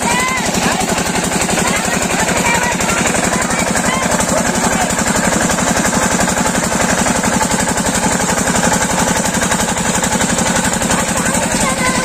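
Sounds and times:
diesel engine chugging: 0.0s - 12.0s
water gushing and splashing: 0.0s - 12.0s.

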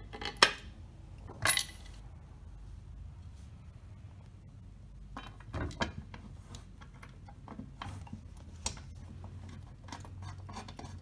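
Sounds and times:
metal parts clicking and knocking: 0.0s - 2.0s
faint room hum: 0.0s - 11.0s.

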